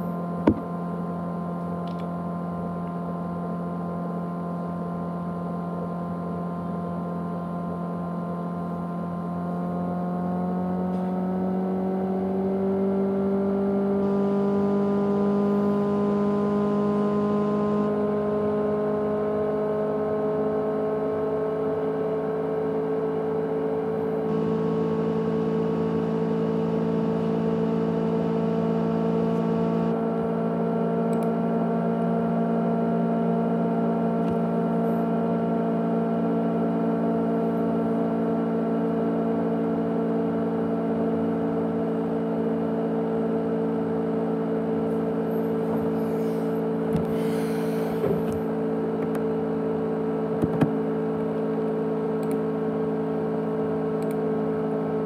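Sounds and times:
hard disk drive humming: 0:00.0 - 0:01.4, 0:22.4 - 0:55.0.

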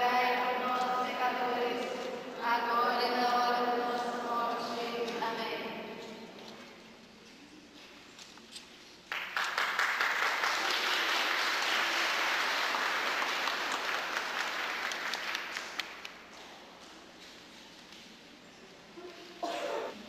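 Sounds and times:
congregation applauding: 0:09.1 - 0:16.2.

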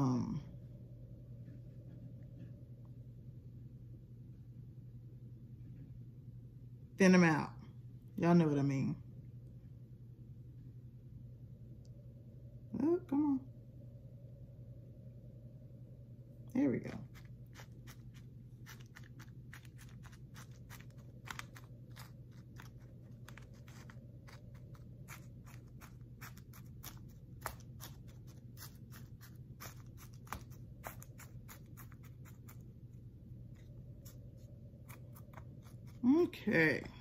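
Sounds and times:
steady low hum: 0:00.0 - 0:37.0
hands sowing seeds clicking: 0:17.0 - 0:32.9.

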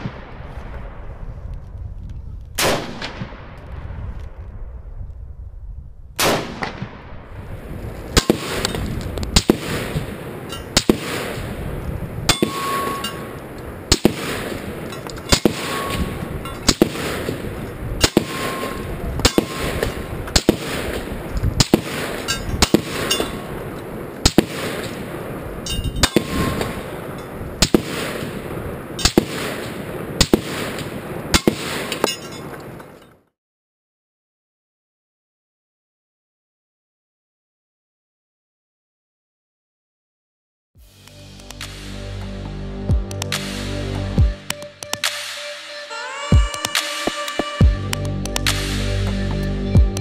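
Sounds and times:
rifle shots: 0:02.6 - 0:04.0, 0:06.2 - 0:07.4, 0:08.1 - 0:11.7, 0:12.3 - 0:25.4, 0:26.0 - 0:32.4
steel plate ringing: 0:12.3 - 0:13.6, 0:14.8 - 0:16.8, 0:18.0 - 0:20.2, 0:22.2 - 0:23.5, 0:25.6 - 0:27.4.

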